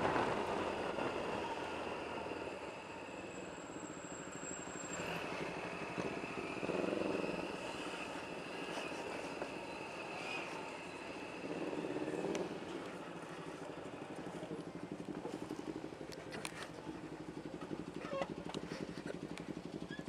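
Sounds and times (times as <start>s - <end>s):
motorcycle engine idling: 5.3s - 20.0s.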